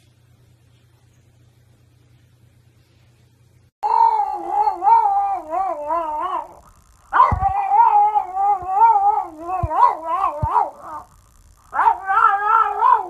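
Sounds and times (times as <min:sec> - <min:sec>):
dog howling: 0:03.8 - 0:11.1, 0:11.7 - 0:13.0.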